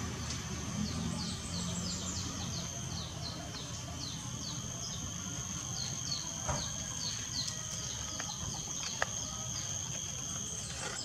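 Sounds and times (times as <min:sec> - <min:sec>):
high-pitched insect drone: 0:04.0 - 0:11.0.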